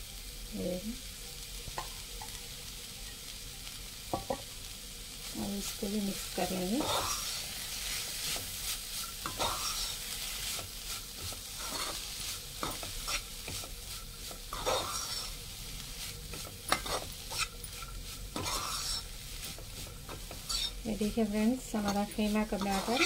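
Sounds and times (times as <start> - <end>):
meat sizzling in a frying pan: 0.0 - 23.0
utensil scraping and knocking pan: 16.3 - 20.8, 21.8 - 23.0.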